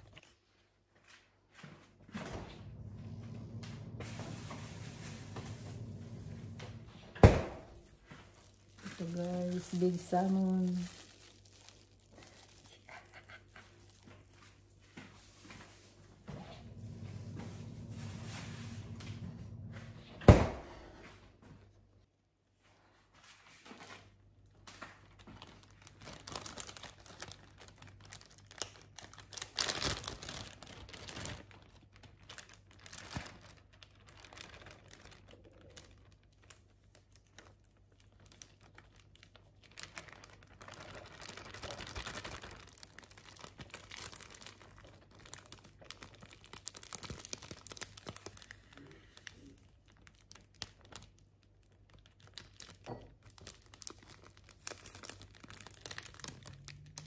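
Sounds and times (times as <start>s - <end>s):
plastic bag crinkling: 2.6s - 19.7s, 24.6s - 57.0s.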